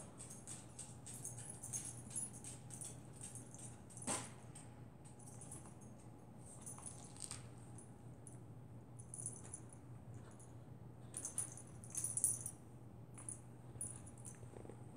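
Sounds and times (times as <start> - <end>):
small clicks and jingling ticks: 0.0 - 7.5.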